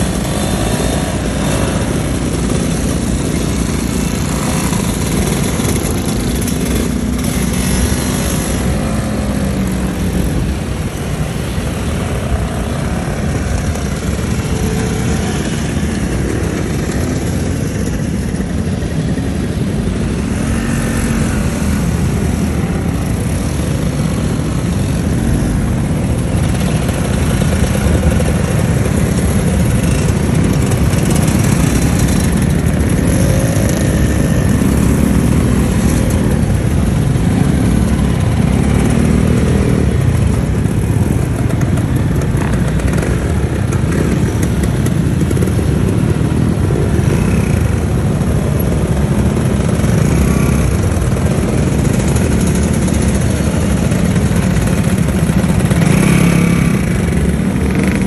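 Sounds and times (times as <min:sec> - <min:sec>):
motor scooters riding past: 0:00.0 - 0:58.0.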